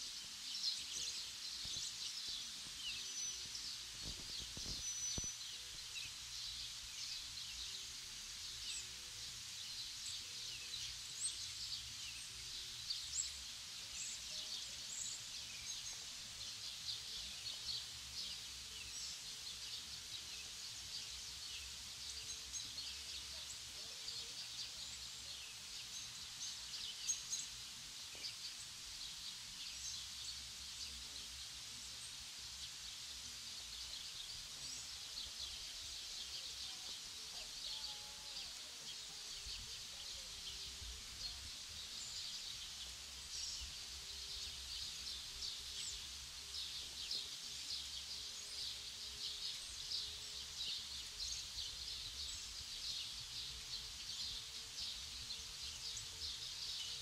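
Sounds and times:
songbirds chirping: 0.0 - 57.0.

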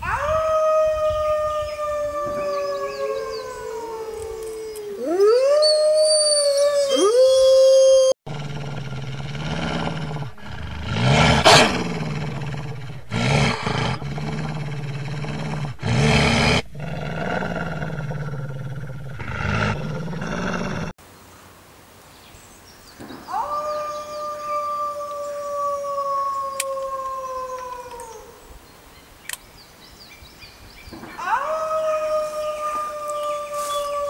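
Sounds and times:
wolf howl rising: 0.0 - 20.9, 23.3 - 28.4, 31.2 - 34.0
wolf growling low: 8.3 - 21.0
faint hiss: 20.4 - 24.2, 26.3 - 31.4.

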